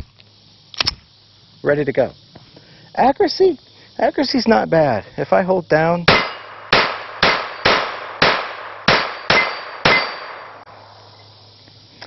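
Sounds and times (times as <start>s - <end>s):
pistol shots: 6.1s - 10.6s
steel target ringing: 6.1s - 10.6s.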